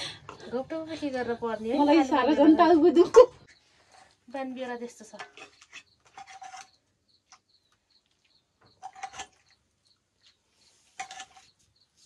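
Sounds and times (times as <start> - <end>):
small bird chirping: 1.2 - 12.0
metal ladle scraping pan: 5.1 - 6.8, 8.7 - 9.6, 10.8 - 11.5.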